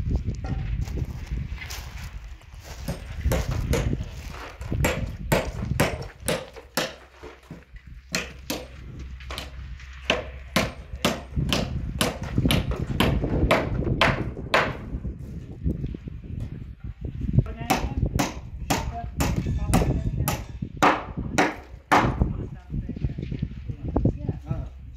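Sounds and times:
hammers knocking on timber: 0:02.9 - 0:04.0, 0:04.8 - 0:14.8, 0:17.7 - 0:22.2.

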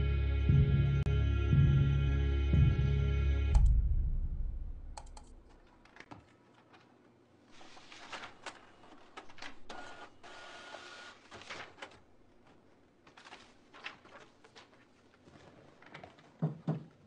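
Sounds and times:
paper sheet rustling: 0:05.6 - 0:10.1, 0:10.7 - 0:16.4
inkjet printer printing: 0:09.4 - 0:11.4.

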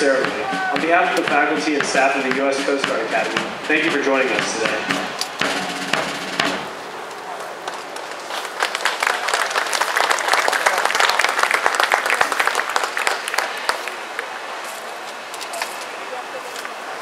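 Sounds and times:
audience applauding: 0:08.0 - 0:14.4.

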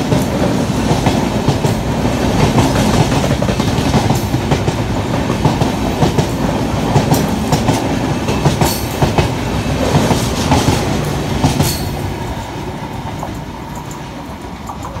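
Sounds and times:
train coaches rolling past: 0:00.0 - 0:15.0
wheels clattering over rail joints: 0:13.1 - 0:15.0.

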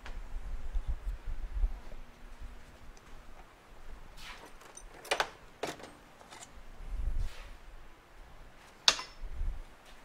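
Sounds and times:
metal tools clanking: 0:04.4 - 0:06.6.

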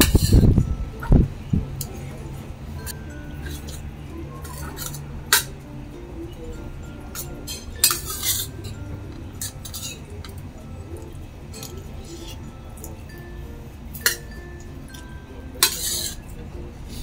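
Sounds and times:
metal spoon scraping steel bowl: 0:00.0 - 0:00.5, 0:07.2 - 0:08.6, 0:09.4 - 0:10.1, 0:15.6 - 0:16.3.

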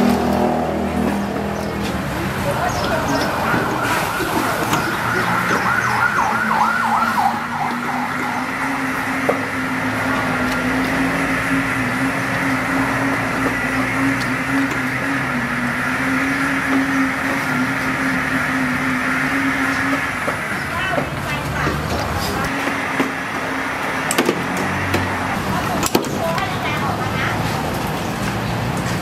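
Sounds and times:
street noise: 0:00.0 - 0:29.0
warbling siren: 0:02.6 - 0:21.3.

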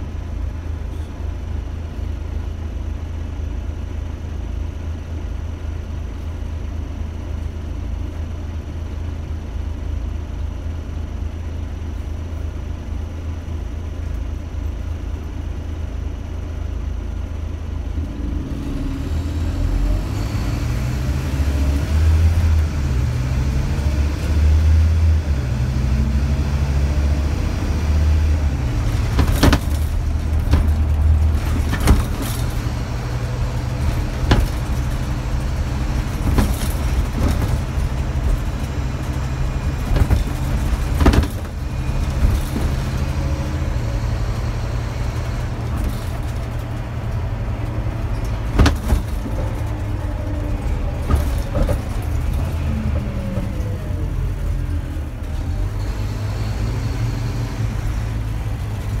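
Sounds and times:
bus diesel engine: 0:00.0 - 0:59.0
bodywork knocking and rattling: 0:28.3 - 0:43.8, 0:45.4 - 0:53.8.

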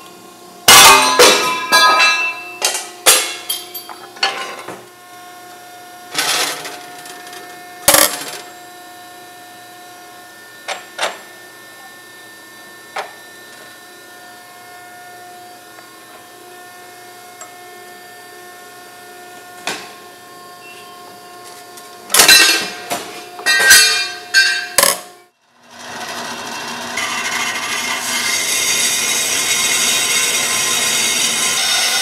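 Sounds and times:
ringing metal clang: 0:00.7 - 0:04.4, 0:22.2 - 0:25.1
steel clanks: 0:22.2 - 0:25.0.

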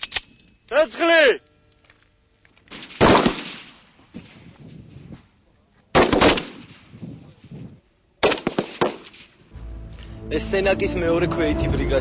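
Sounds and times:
rifle shots echoing: 0:02.7 - 0:03.9, 0:05.9 - 0:06.8.

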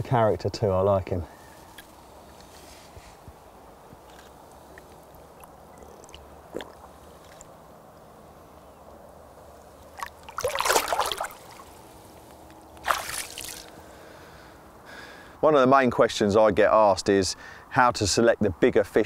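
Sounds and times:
water splashing: 0:04.1 - 0:07.6, 0:09.6 - 0:13.8.

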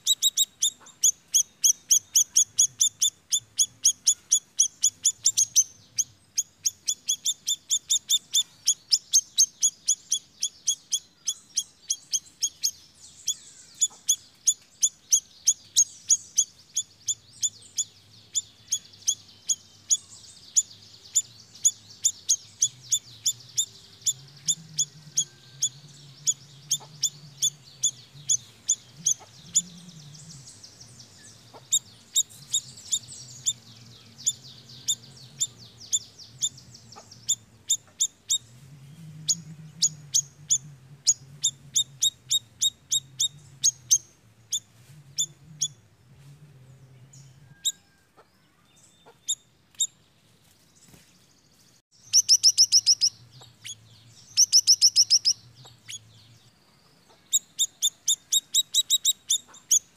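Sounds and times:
songbird calling in sharp chips: 0:00.0 - 0:30.5, 0:51.9 - 0:56.0, 0:57.1 - 0:59.9.

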